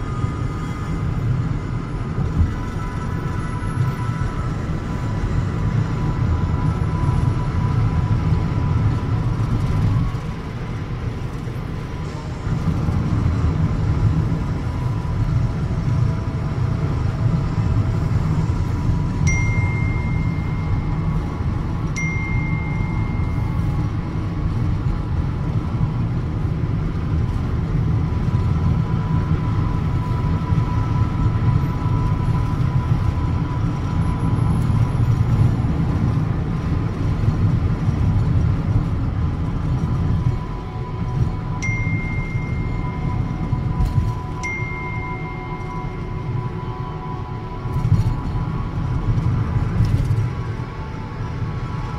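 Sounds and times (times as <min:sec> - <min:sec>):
car road and engine rumble: 0:00.0 - 0:51.9
short high tones: 0:19.2 - 0:24.2, 0:40.3 - 0:51.2.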